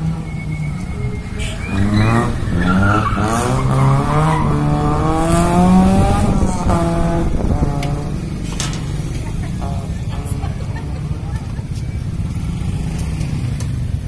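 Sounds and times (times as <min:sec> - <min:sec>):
tyres squealing: 0:00.0 - 0:13.5
car engine revving hard: 0:01.2 - 0:13.5.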